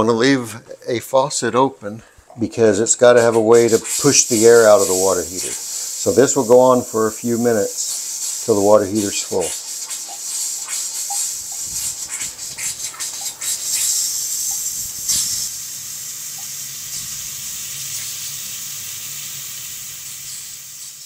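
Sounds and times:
faucet hissing and spitting: 3.0 - 21.0
water stream into sink: 3.1 - 21.0.

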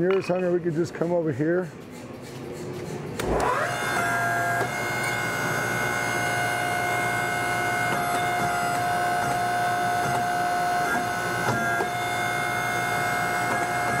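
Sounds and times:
electric motor whining: 3.2 - 14.0.

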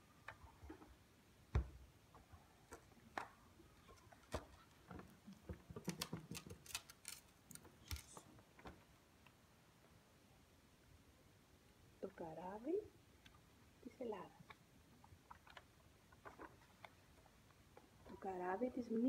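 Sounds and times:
stiff card rustling: 5.8 - 8.2.

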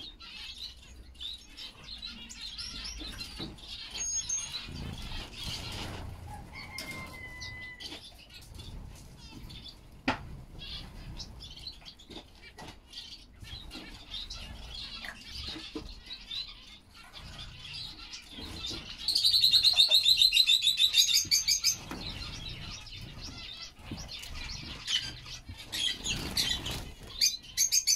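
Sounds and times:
finches chirping: 0.0 - 27.9
wings fluttering: 4.4 - 11.7, 21.2 - 27.9.

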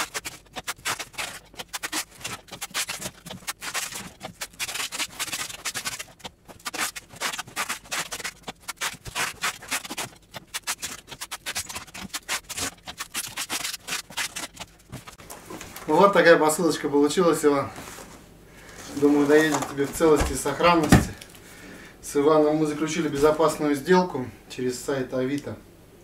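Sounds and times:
tape rubbed onto cardboard box: 0.0 - 15.2
packing tape ripping off roll: 0.0 - 16.0, 18.6 - 21.4.

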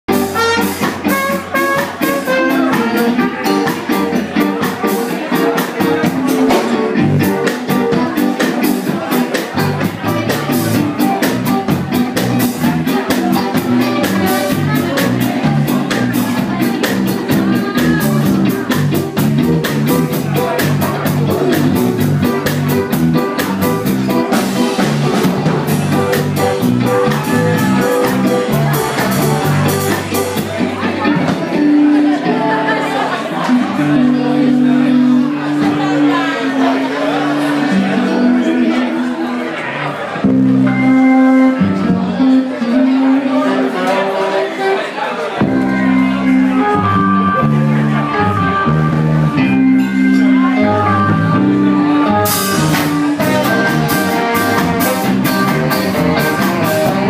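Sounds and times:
horn section playing: 0.1 - 4.3, 23.7 - 30.4, 40.3 - 44.3, 45.5 - 57.0
drums quick steady beat: 0.1 - 31.6, 52.2 - 57.0
ska band playing: 0.1 - 57.0.

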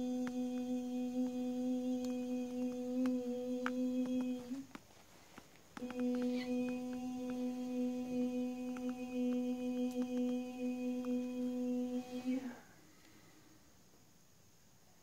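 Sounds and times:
woman humming: 0.0 - 4.8, 5.8 - 12.6.

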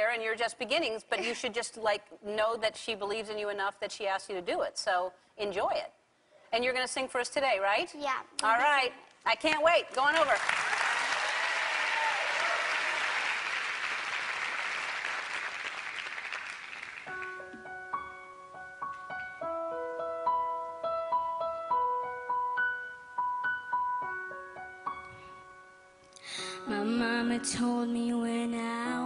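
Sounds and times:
audience applause: 10.2 - 17.4
slow piano notes and chords: 17.1 - 29.0.

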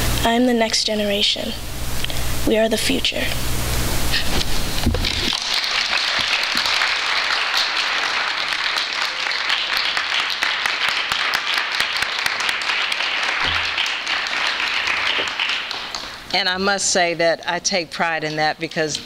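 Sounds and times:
audience applauding: 5.0 - 16.3.

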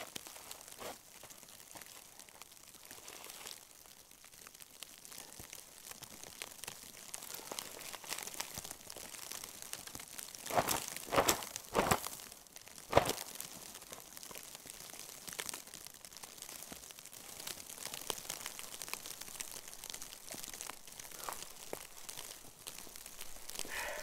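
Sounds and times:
boots crunching in snow: 10.4 - 12.2, 12.9 - 13.3
jacket fabric rustling: 10.5 - 12.1, 12.9 - 13.2.

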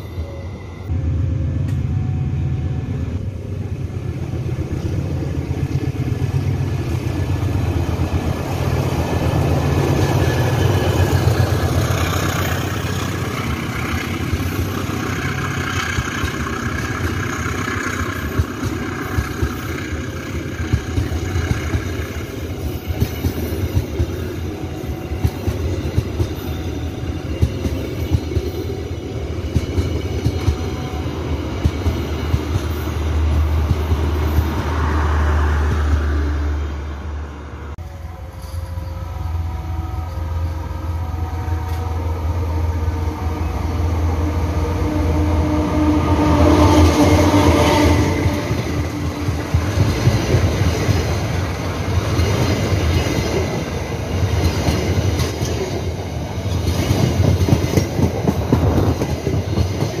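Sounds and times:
diesel locomotive engine: 0.0 - 60.0
train coaches rumbling past: 0.0 - 60.0
wheels clattering on rails: 5.4 - 24.4, 46.8 - 60.0.

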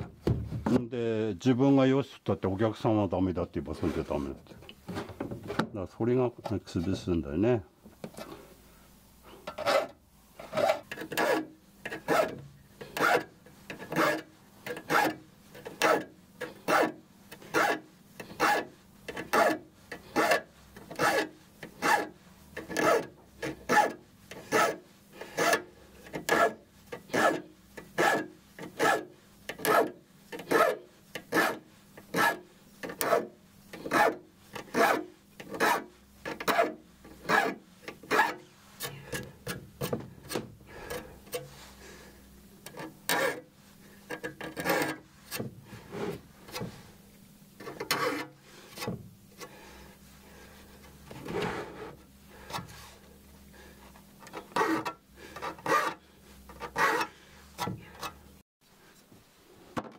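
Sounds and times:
hand file rasping on saw teeth: 10.5 - 39.2, 43.1 - 43.5, 47.8 - 48.9, 54.3 - 57.6.

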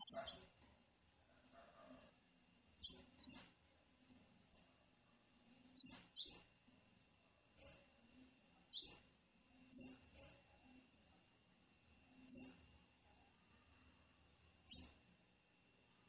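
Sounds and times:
bird chip calls: 0.0 - 0.5, 2.8 - 3.5, 5.8 - 6.4, 8.7 - 9.0, 12.3 - 12.5, 14.7 - 14.9.

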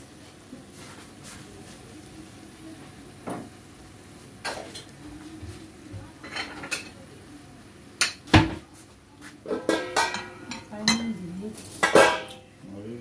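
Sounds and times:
plate and pan lid clinking: 9.6 - 11.1.

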